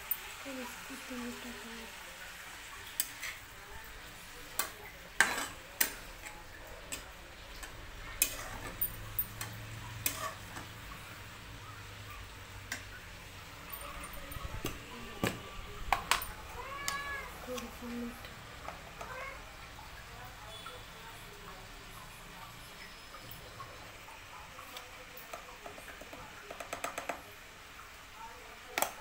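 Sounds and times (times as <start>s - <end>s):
kitchen utensils clicking and knocking: 4.5s - 11.2s, 13.6s - 19.2s, 25.2s - 27.3s.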